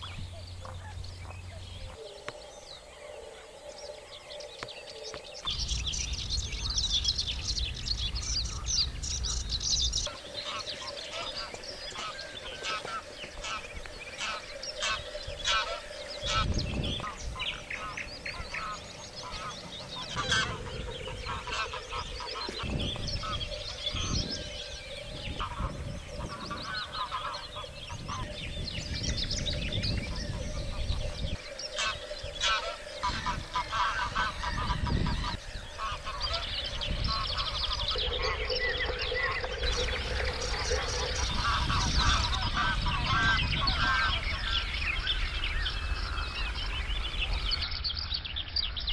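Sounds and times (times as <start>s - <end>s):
geese honking: 5.4s - 23.6s, 25.3s - 28.3s, 31.8s - 44.7s
low rumbles: 5.5s - 10.1s, 36.6s - 43.7s.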